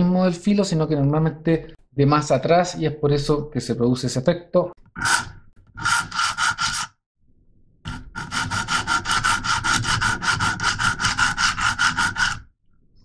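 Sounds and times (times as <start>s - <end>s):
sharpening stone rasping on blade: 5.0s - 6.9s, 7.9s - 12.5s.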